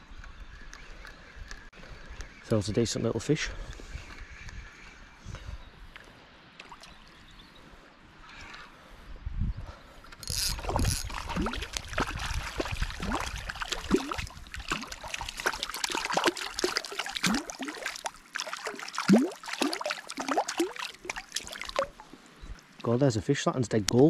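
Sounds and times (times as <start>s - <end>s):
fish splashing in water: 10.3s - 22.2s.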